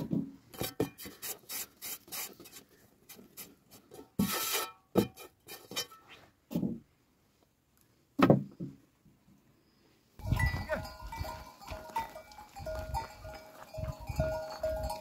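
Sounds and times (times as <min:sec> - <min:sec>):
goat neck bells clanking: 0:10.2 - 0:15.0.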